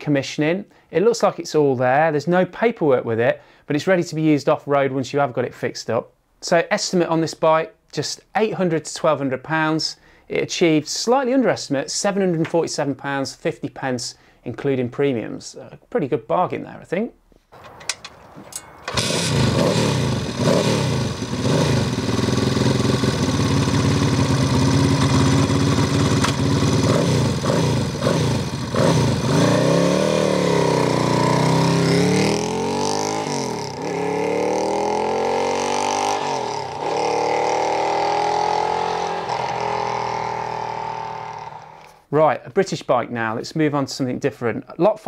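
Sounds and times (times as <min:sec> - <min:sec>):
motorcycle engine revving and accelerating: 0:18.9 - 0:41.9.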